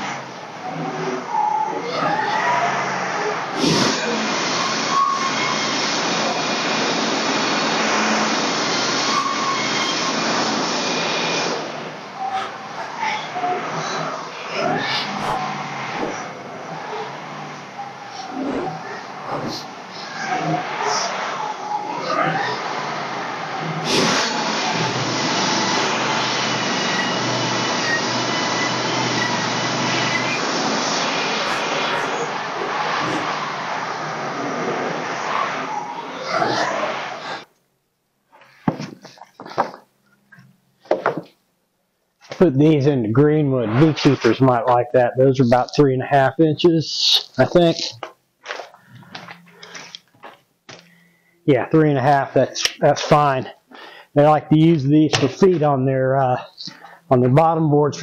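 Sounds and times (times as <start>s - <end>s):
band sawmill sawing boards: 0.0s - 37.5s.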